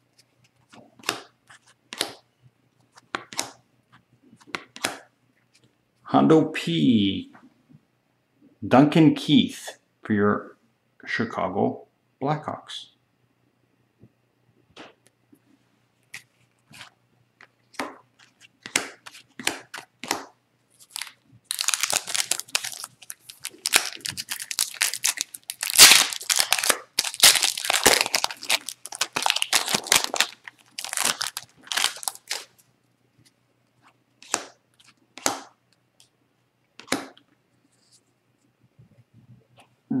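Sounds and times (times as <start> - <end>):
foil wrapper tearing and crinkling: 20.8 - 32.5.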